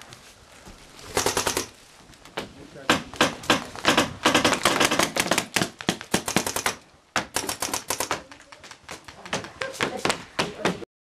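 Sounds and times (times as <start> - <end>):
paintball markers firing: 2.9 - 8.3.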